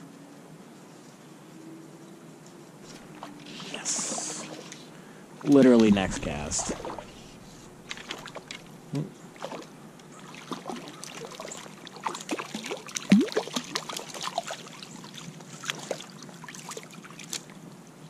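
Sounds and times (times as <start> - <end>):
fish splashing in water: 5.4 - 8.7, 9.3 - 17.6.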